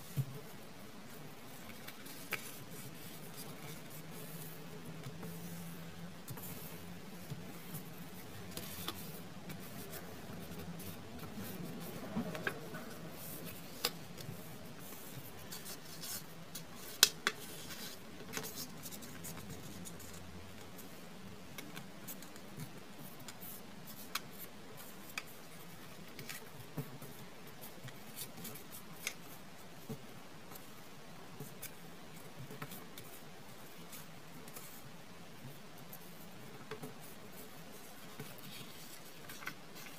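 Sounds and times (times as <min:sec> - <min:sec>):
paper rustling: 0:36.0 - 0:39.9.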